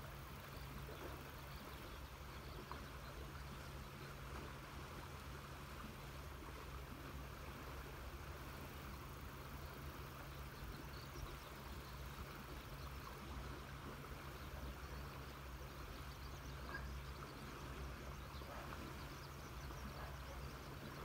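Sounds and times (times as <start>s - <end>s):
low steady hum: 0.0s - 21.0s
faint bird chirps: 9.5s - 21.0s.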